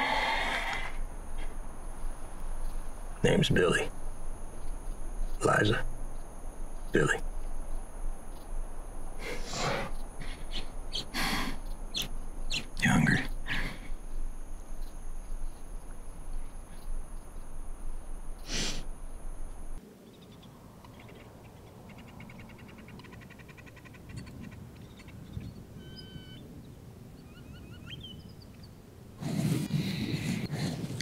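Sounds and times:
steady hiss: 0.0 - 19.8
small bird chirping trills: 1.0 - 19.3, 20.0 - 28.9.

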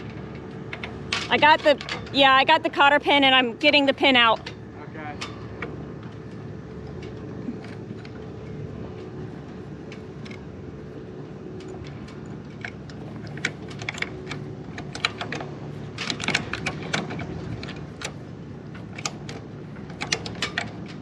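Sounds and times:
steady low hum: 0.0 - 21.0
rigging hardware clicks and taps: 11.6 - 21.0.

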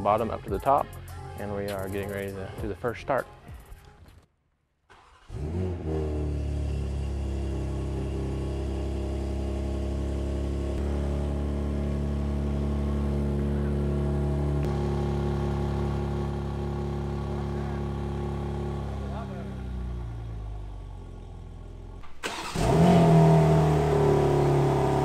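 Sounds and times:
car engine idling: 6.4 - 25.0.

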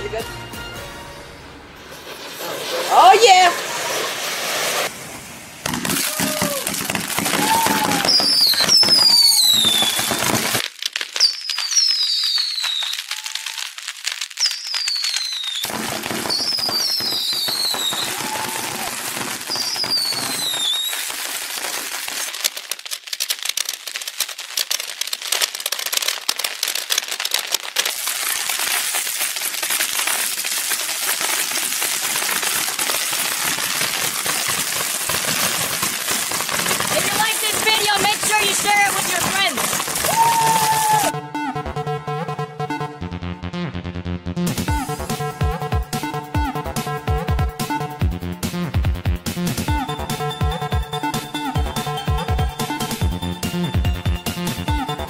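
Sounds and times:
fireworks falling whistles: 1.2 - 41.2
fireworks crackling and popping: 1.4 - 41.2, 44.5 - 55.0.

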